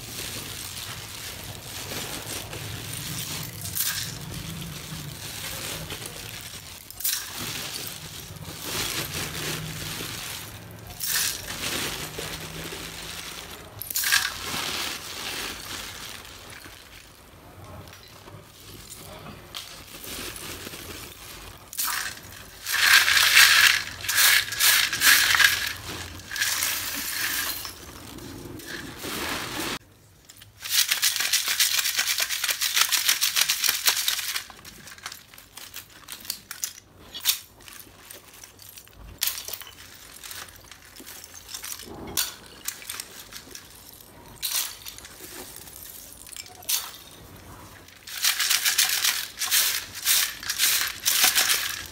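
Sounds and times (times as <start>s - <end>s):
clay chips rattling in steel sieve: 0.0s - 29.8s, 30.4s - 51.9s
clinks of chips being handled: 21.4s - 28.6s, 30.3s - 51.9s.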